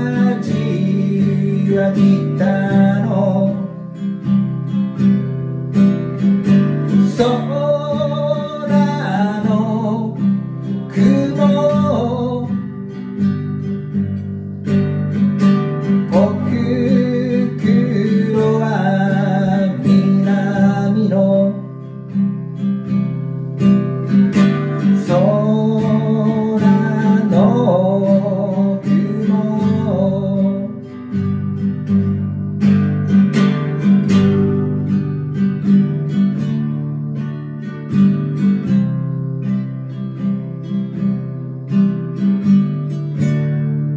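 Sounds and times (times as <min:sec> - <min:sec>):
man singing: 0:00.0 - 0:04.0, 0:06.8 - 0:13.3, 0:15.8 - 0:22.2, 0:24.5 - 0:31.4
acoustic guitar strumming: 0:00.0 - 0:43.9.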